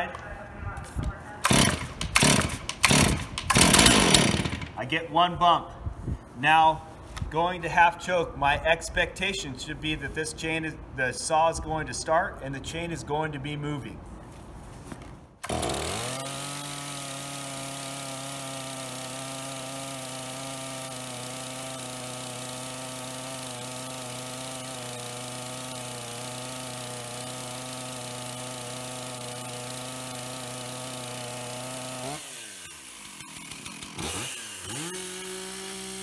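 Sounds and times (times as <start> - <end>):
chainsaw starting and running: 1.4 - 4.8, 15.4 - 36.0.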